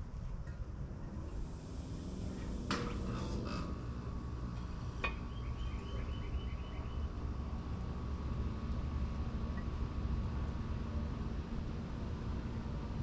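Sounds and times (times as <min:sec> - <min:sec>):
low background rumble: 0:00.0 - 0:13.0
bird trill: 0:05.3 - 0:07.1.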